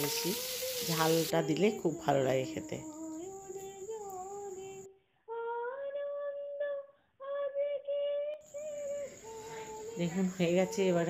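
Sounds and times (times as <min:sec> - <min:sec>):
woman singing held notes: 0:00.0 - 0:05.0, 0:08.6 - 0:11.0.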